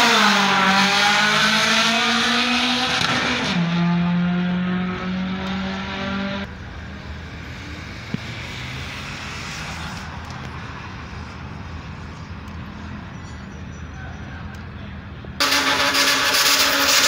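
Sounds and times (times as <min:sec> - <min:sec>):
distant car engine accelerating: 0:00.0 - 0:06.5
outdoor noise: 0:00.0 - 0:17.0.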